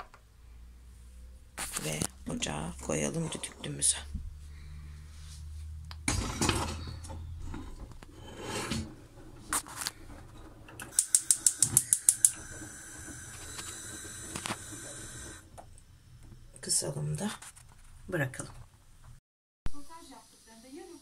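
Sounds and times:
pot scraping on metal grate: 0:01.6 - 0:04.0, 0:06.0 - 0:15.4
gas burner lighting: 0:05.9 - 0:16.8
spark igniter clicking: 0:10.8 - 0:12.4.

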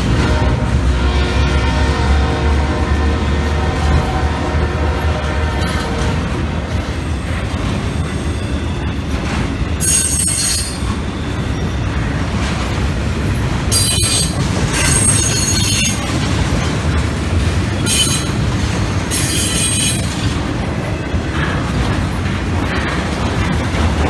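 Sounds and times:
freight train rumbling: 0:00.0 - 0:24.0
train wheel squeal: 0:06.8 - 0:12.5, 0:13.7 - 0:16.1, 0:17.7 - 0:21.6, 0:22.7 - 0:24.0.

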